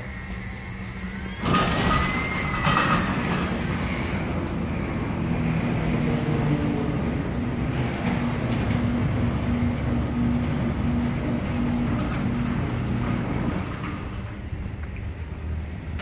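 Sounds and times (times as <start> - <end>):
jet turbine air rush: 0.0 - 11.0
low hum: 0.0 - 16.0.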